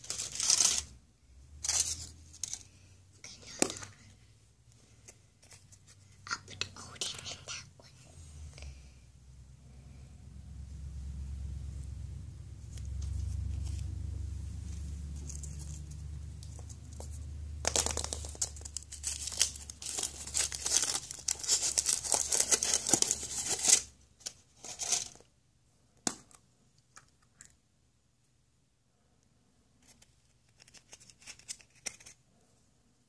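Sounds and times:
foil wrapper crinkling and tearing: 0.0s - 0.9s, 17.7s - 25.2s.

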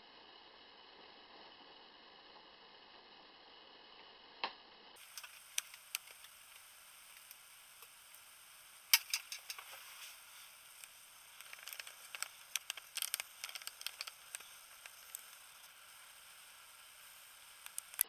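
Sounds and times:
low hiss: 0.0s - 18.0s
handling clicks and rustles: 8.9s - 16.5s.

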